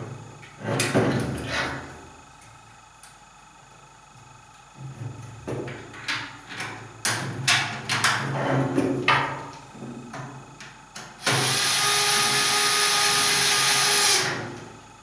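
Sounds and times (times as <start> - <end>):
cordless screwdriver running: 11.2 - 14.3.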